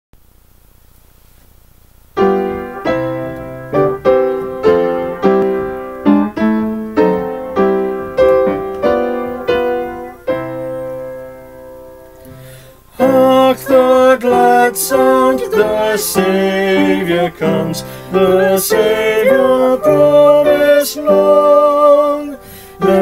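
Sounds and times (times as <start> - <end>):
upright piano playing chords: 2.2 - 23.0
person singing: 12.9 - 23.0.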